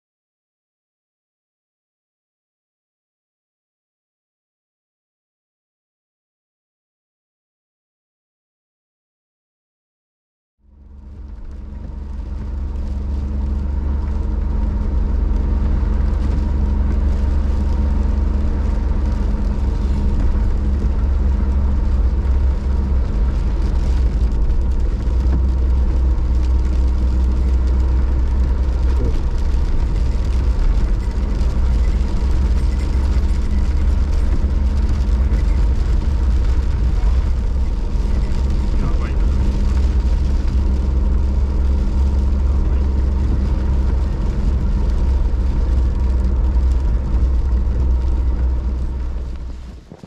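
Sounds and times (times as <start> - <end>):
vehicle engine and tyres on snow: 10.6 - 50.0.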